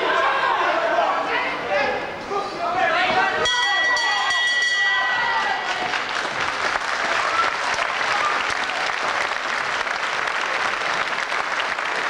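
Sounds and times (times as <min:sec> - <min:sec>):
crowd clapping: 0:05.3 - 0:12.0.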